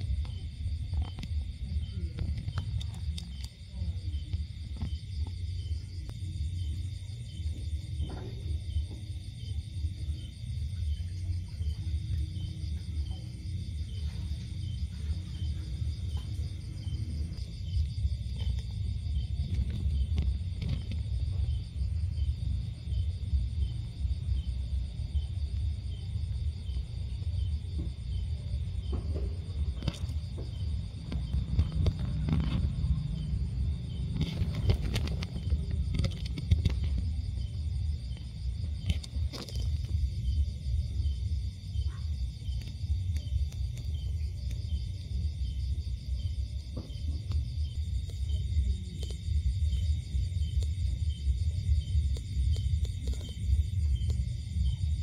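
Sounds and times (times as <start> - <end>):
insects chirping: 0.0 - 55.0
steady low rumble: 0.0 - 55.0.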